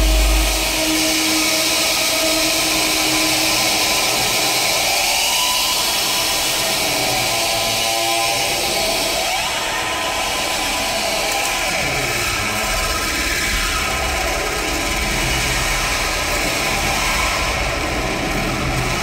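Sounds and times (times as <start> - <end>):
kick-drum beat: 0.0 - 0.9
held synthesizer tones: 0.0 - 1.0
rising synthesizer tone: 0.0 - 1.4
harsh electronic synthesizer noise: 0.0 - 5.2.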